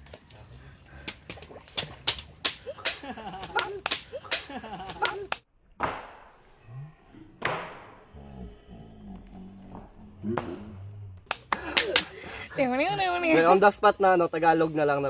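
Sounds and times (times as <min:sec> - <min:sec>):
sharp clicks and slaps: 0:01.0 - 0:06.3, 0:10.3 - 0:12.1
whip-crack sound effects: 0:01.0 - 0:06.4, 0:07.4 - 0:08.1, 0:10.3 - 0:12.1.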